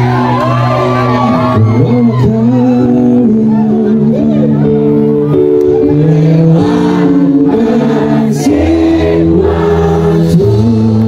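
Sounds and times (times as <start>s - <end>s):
live pop band playing: 0.0s - 11.0s
crowd singing along: 5.6s - 11.0s.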